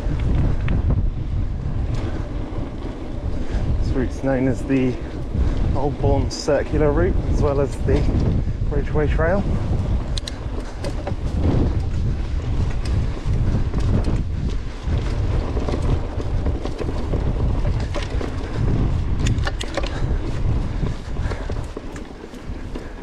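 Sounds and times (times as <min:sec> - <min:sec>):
bike clicks and rattles: 0:00.0 - 0:23.0
bike tyres on dirt: 0:00.0 - 0:23.0
wind buffeting microphone: 0:00.0 - 0:23.0.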